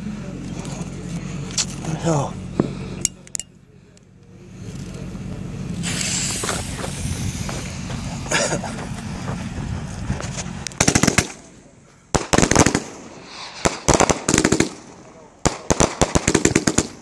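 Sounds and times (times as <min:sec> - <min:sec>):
firework rushing noise: 0:05.6 - 0:17.0
volleys of firework cracks: 0:10.7 - 0:17.0.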